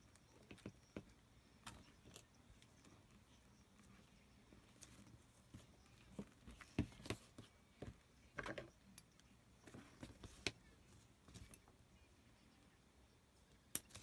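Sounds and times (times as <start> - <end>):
soft taps rustles and clicks: 4.7 - 11.7.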